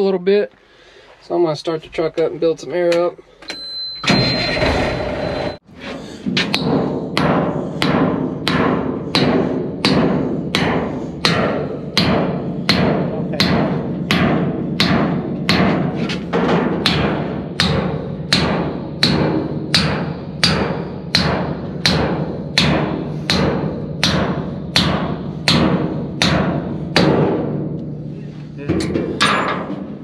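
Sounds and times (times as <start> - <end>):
hammer striking steel bar: 6.3 - 28.1, 28.7 - 30.0.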